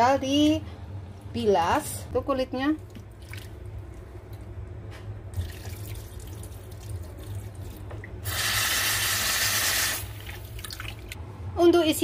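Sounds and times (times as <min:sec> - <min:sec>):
low steady hum: 0:00.0 - 0:09.0, 0:09.9 - 0:12.0
water splashing and dripping: 0:10.2 - 0:11.2.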